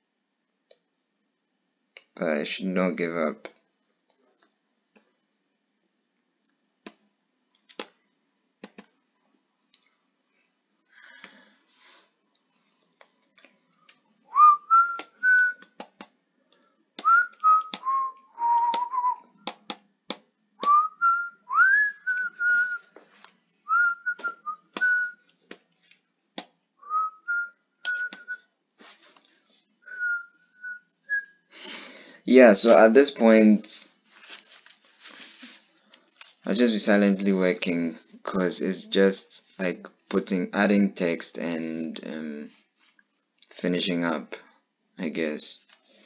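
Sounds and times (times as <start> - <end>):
person whistling a tune: 14.3 - 15.7, 17.0 - 19.3, 20.6 - 22.9, 23.7 - 25.2, 26.8 - 28.4, 29.9 - 31.4.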